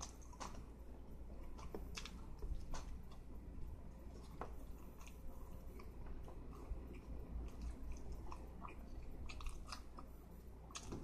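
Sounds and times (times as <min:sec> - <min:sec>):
person chewing with mouth open: 0:00.0 - 0:03.3, 0:04.0 - 0:11.0
low steady hum: 0:00.0 - 0:11.0.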